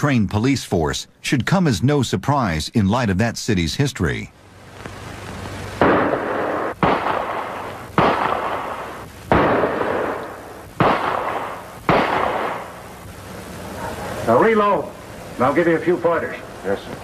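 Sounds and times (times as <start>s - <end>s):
gunshot echo: 5.8s - 12.7s.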